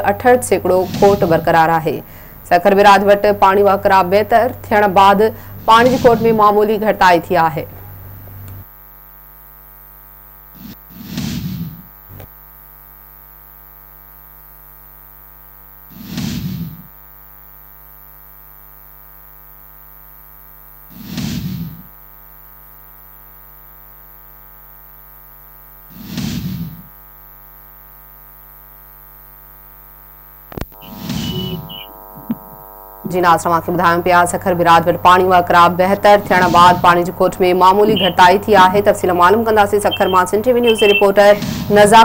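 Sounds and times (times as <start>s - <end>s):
steady electrical hum: 0.0s - 11.0s, 26.9s - 42.0s.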